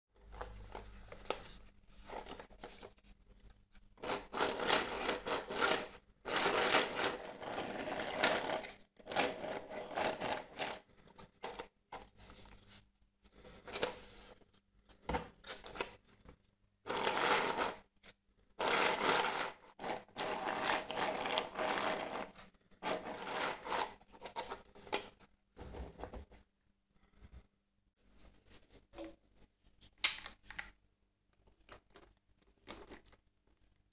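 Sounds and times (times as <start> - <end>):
plastic rubbing and rattling: 0.2 - 12.7, 18.6 - 26.4.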